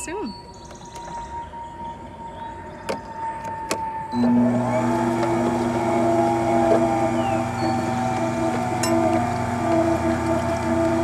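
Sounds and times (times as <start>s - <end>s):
juicer motor humming: 3.8s - 11.0s.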